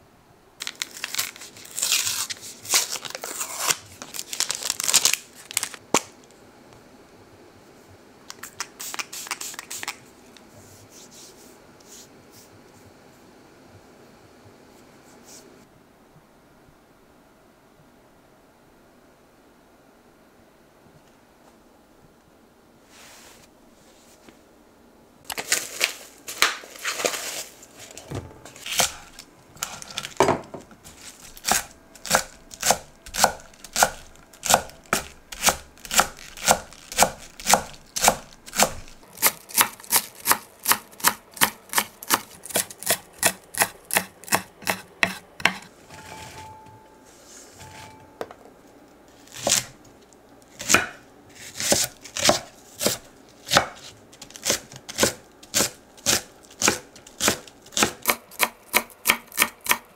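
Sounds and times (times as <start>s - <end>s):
knife chopping on wooden board: 31.4s - 45.7s, 50.6s - 51.0s, 51.6s - 59.8s.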